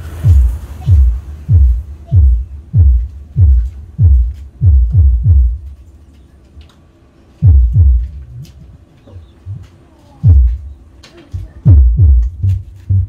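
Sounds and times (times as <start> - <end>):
deep kick-drum thumps: 0.2 - 5.7, 7.4 - 8.4, 10.2 - 10.7, 11.6 - 13.0.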